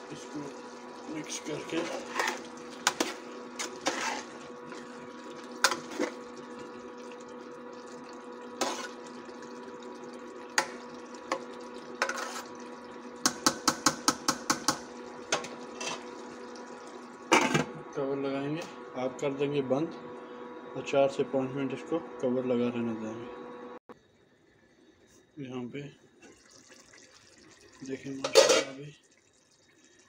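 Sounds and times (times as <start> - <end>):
cooktop hum: 0.0 - 30.0
spoon scraping metal pot: 1.8 - 4.8, 8.6 - 9.0, 12.0 - 12.5, 28.3 - 28.8.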